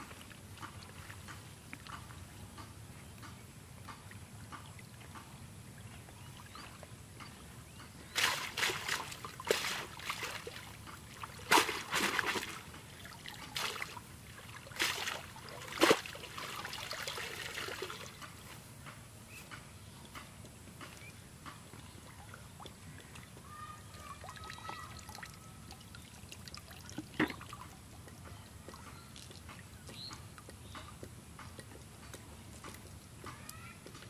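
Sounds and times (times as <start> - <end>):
muddy water splashing and sloshing: 0.0 - 18.5, 20.8 - 31.9
water trickling: 8.0 - 18.4, 21.7 - 31.9.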